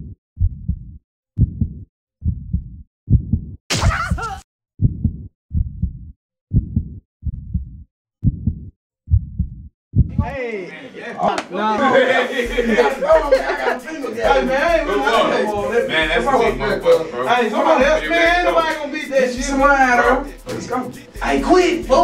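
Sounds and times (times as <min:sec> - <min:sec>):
heartbeat thumps: 0:00.0 - 0:04.2, 0:04.8 - 0:10.4.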